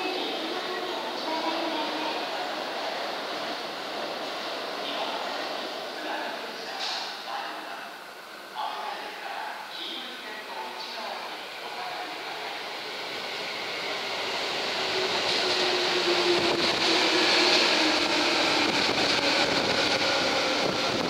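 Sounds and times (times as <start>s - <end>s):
train whine: 10.5s - 21.0s
train wheels on rails: 11.7s - 21.0s.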